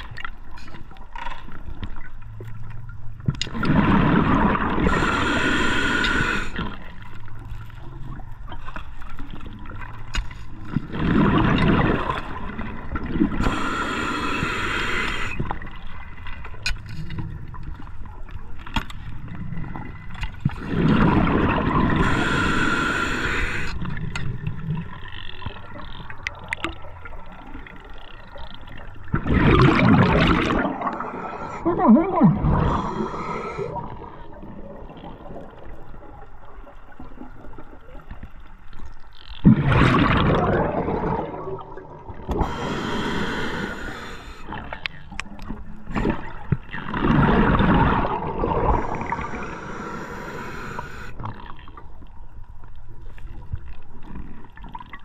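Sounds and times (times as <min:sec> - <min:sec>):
bubbling exhale underwater: 0:03.5 - 0:07.0, 0:10.8 - 0:15.7, 0:20.6 - 0:23.6, 0:29.1 - 0:35.9, 0:39.4 - 0:44.8, 0:45.8 - 0:51.5
air hissing through regulator: 0:04.8 - 0:06.6, 0:13.4 - 0:15.5, 0:21.9 - 0:23.8, 0:32.6 - 0:34.0, 0:42.3 - 0:44.5, 0:48.7 - 0:51.2.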